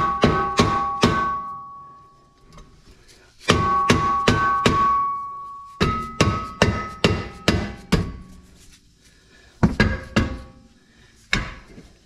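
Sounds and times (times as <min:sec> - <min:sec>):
hammer blows on ringing steel: 0:00.0 - 0:02.2, 0:03.5 - 0:08.1.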